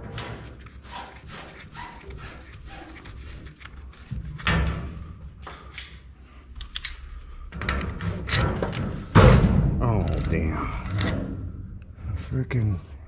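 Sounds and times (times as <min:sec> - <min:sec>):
heavy thump: 0:09.0 - 0:10.0.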